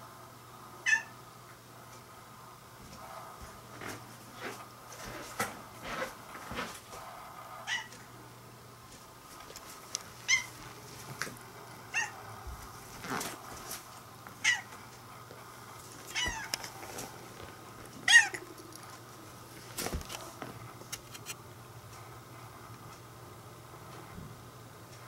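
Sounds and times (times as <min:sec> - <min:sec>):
cat meowing: 0:00.9 - 0:01.1, 0:07.6 - 0:07.9, 0:11.9 - 0:12.2, 0:18.0 - 0:18.4.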